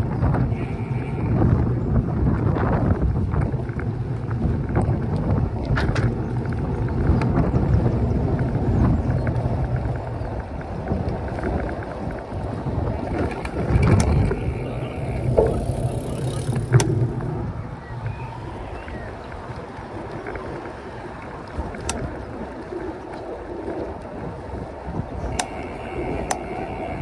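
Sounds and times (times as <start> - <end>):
bicycle tyres rumbling: 0.0 - 27.0
wind on microphone: 0.0 - 27.0
sharp clicks and knocks: 15.2 - 17.2.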